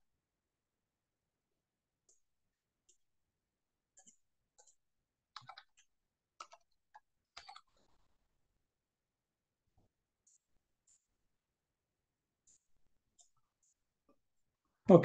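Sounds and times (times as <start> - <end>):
keyboard and mouse clicks: 3.9 - 8.1.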